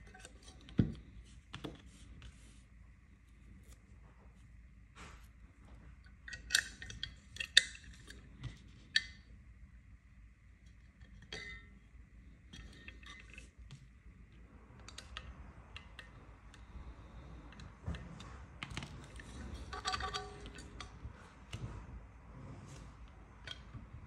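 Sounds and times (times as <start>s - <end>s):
small metal parts clicking: 18.6s - 21.0s.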